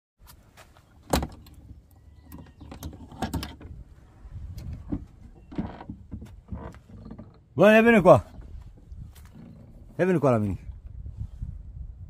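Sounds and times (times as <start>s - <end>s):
shed door opening: 0.9s - 10.4s.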